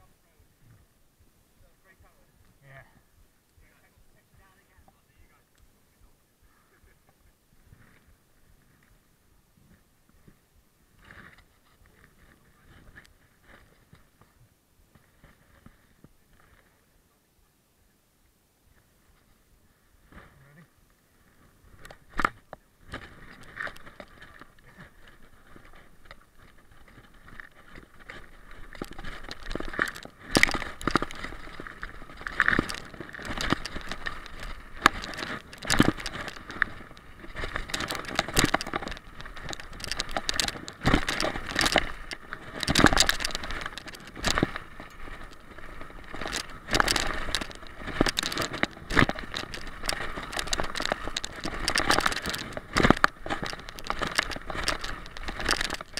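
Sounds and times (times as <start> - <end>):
tyres on dirt trail: 0.0 - 55.9
bike clattering over bumps: 22.0 - 55.9.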